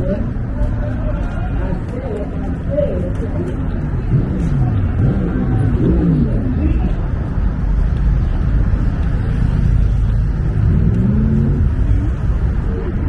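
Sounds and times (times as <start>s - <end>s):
road traffic rumble: 0.0s - 13.0s
car engine revving: 4.0s - 6.8s, 8.4s - 12.3s.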